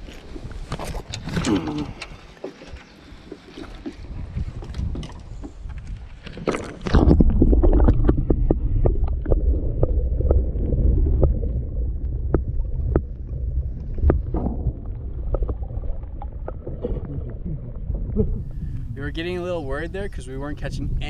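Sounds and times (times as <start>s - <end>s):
clicks and knocks underwater: 0.0s - 19.0s
muffled underwater rumbling: 0.0s - 21.0s
camera plunging into water: 3.6s - 17.4s.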